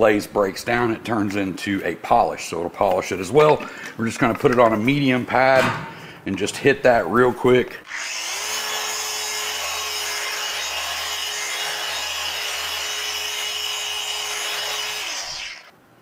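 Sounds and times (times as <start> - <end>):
polisher motor whine: 7.9 - 15.7.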